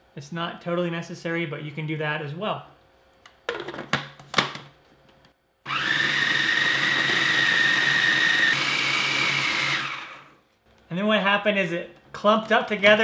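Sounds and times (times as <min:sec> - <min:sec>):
food processor motor whining: 0:05.7 - 0:10.4.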